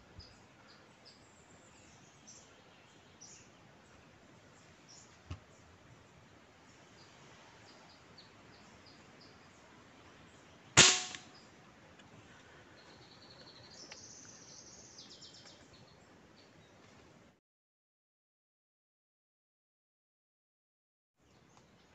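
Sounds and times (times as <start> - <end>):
air rifle shot: 10.8 - 11.4
birds chirping: 12.4 - 16.8.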